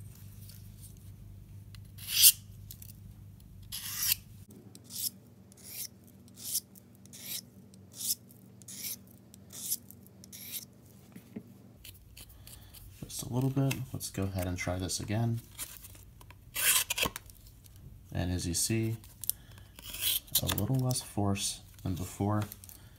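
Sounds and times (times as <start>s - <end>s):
knife rasping on sharpener rod: 2.0s - 2.4s, 3.7s - 4.2s, 4.9s - 7.4s, 8.0s - 10.7s, 19.8s - 20.4s.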